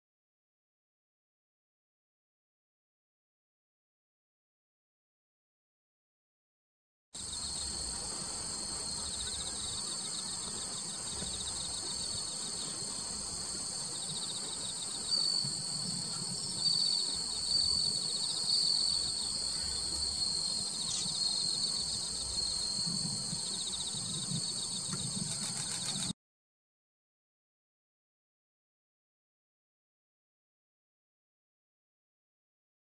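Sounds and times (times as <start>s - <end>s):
crickets trilling: 7.2s - 26.1s.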